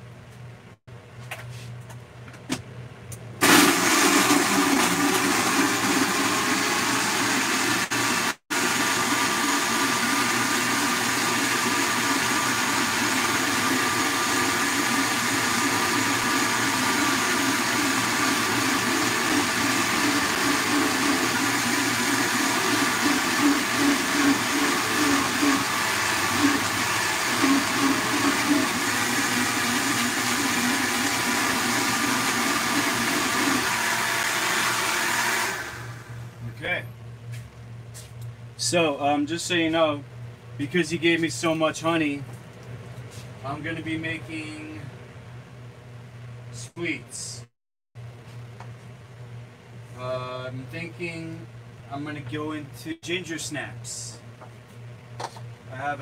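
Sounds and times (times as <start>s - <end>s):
blender running at high speed: 3.4s - 36.2s
tamper pushing thick mix: 7.1s - 35.2s.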